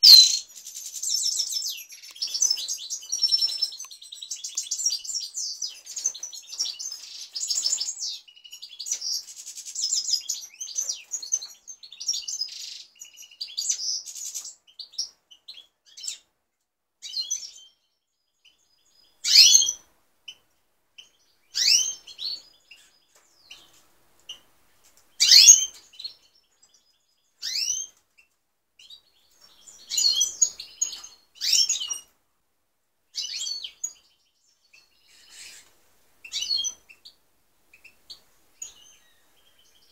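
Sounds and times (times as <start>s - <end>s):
loud sweeping bird calls: 19.1s - 19.9s, 21.0s - 23.7s, 25.2s - 26.4s, 33.1s - 39.9s.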